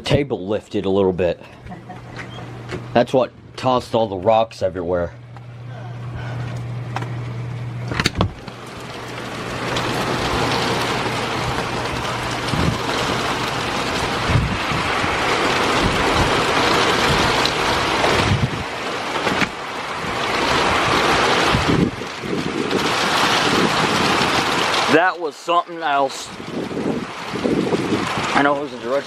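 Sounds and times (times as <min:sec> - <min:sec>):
steady low hum: 0:00.0 - 0:15.0
driving rain: 0:05.4 - 0:29.0
wind buffeting microphone: 0:08.2 - 0:24.8, 0:26.3 - 0:28.6
wind gusting: 0:08.3 - 0:24.9, 0:26.3 - 0:28.6.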